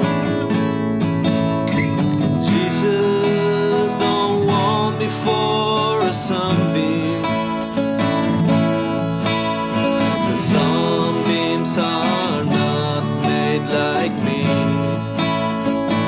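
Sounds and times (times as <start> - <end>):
acoustic guitars playing: 0.0 - 16.0
man singing: 2.4 - 8.2, 9.8 - 16.0.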